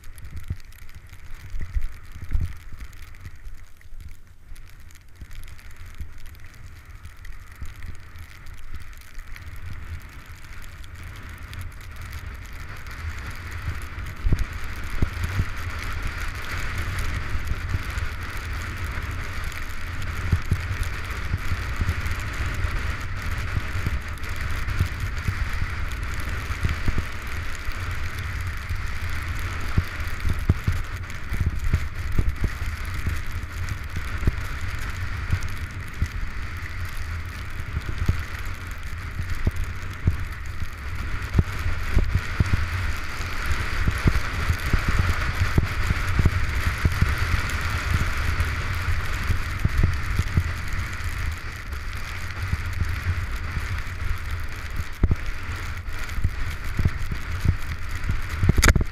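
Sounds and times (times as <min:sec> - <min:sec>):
skis hissing over snow: 0:04.2 - 0:58.9
wind buffeting microphone: 0:56.2 - 0:58.9.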